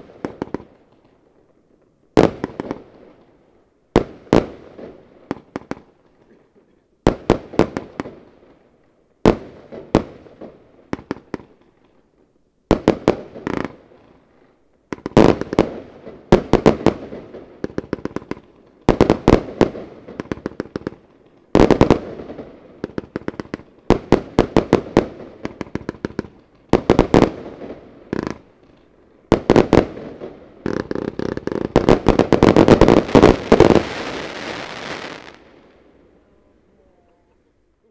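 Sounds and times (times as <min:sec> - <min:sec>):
rapid firework crackling: 0:29.3 - 0:35.4
firework volleys of sharp shots: 0:29.3 - 0:35.6.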